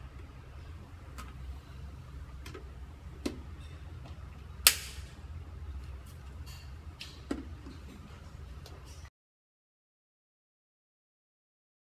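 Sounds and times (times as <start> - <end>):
steady low hum: 0.0 - 9.1.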